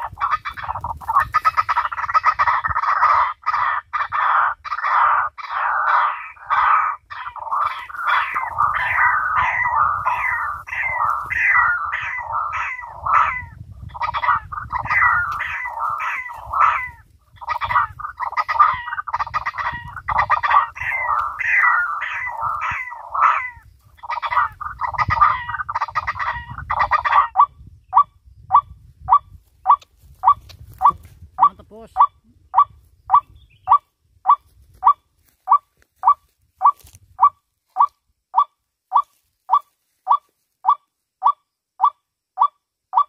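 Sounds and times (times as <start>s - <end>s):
waterhen calls through loudspeaker: 0.0s - 27.5s.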